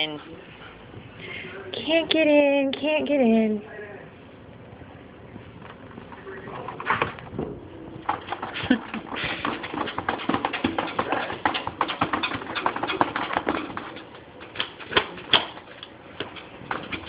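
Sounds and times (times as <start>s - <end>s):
dog claws scratching on glass door: 9.6s - 17.0s.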